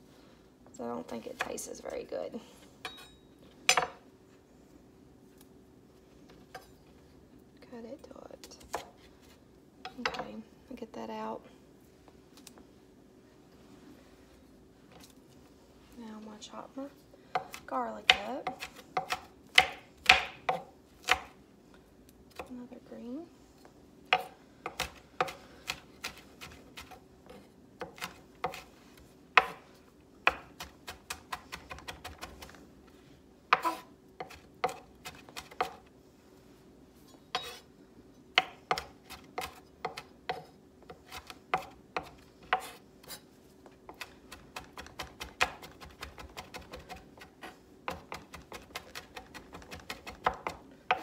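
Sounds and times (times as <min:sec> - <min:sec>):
knife chopping on wooden board: 0:17.4 - 0:21.3, 0:27.8 - 0:28.7, 0:29.4 - 0:29.6, 0:33.5 - 0:35.8, 0:38.4 - 0:43.2.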